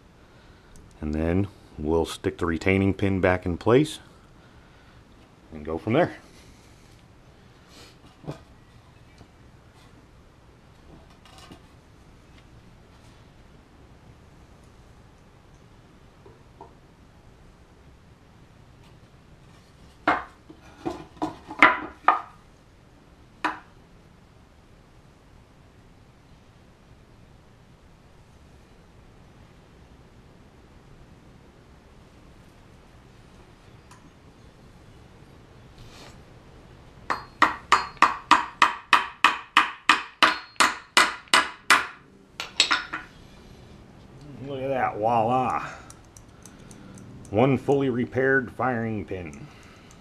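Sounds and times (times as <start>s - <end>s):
hammer tapping metal pin: 37.1s - 43.1s.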